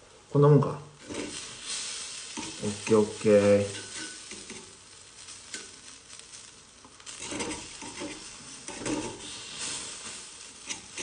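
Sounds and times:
batter sizzling in pan: 0.0 - 11.0
metal pick scraping pan: 2.4 - 4.8, 7.1 - 11.0.

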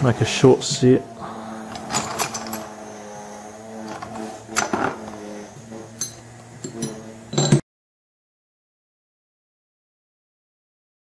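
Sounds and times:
steady low hum: 0.0 - 7.6
metal clamps clinking in plastic tub: 1.7 - 2.6, 3.9 - 5.1, 6.0 - 7.6.

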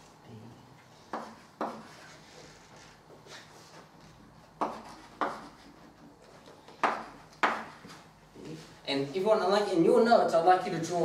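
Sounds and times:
chalk tapping on blackboard: 1.1 - 3.9, 4.6 - 8.0.

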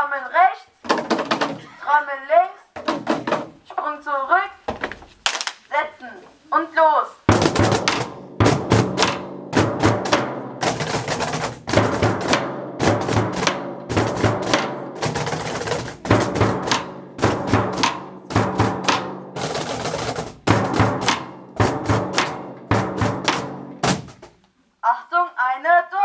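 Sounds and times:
drums played with felt mallets: 2.8 - 3.6, 7.3 - 24.4.

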